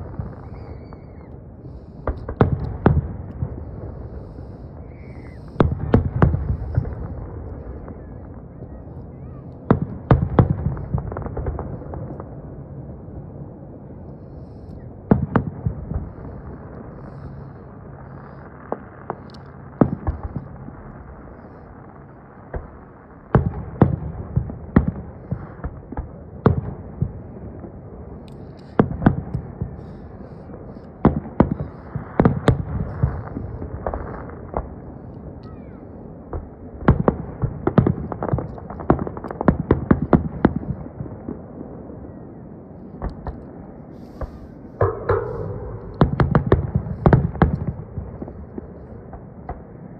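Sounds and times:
firework shells bursting: 0:44.0 - 0:48.9.

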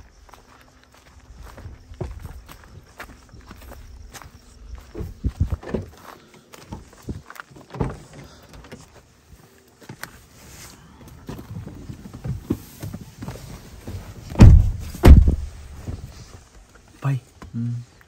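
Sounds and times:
rustling movement in car cabin: 0:07.6 - 0:16.6
car doors slamming: 0:14.3 - 0:16.0.

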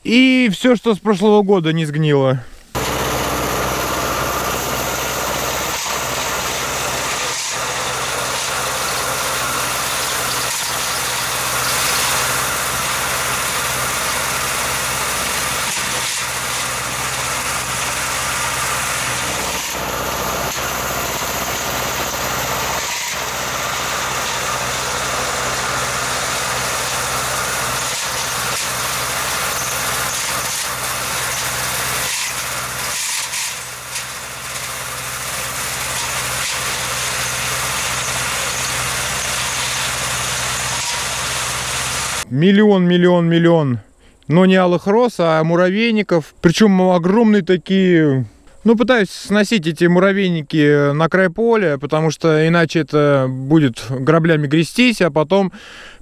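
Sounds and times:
tractor diesel engine running: 0:02.8 - 0:42.3.

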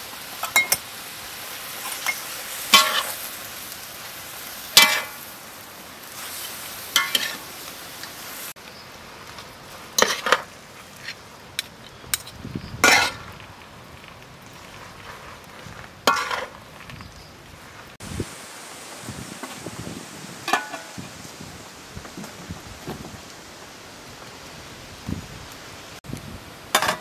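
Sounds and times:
food sizzling in a wok: 0:00.0 - 0:27.0
metal ladle scraping a wok: 0:06.2 - 0:07.4, 0:10.0 - 0:11.2, 0:12.2 - 0:13.3, 0:14.8 - 0:16.6.

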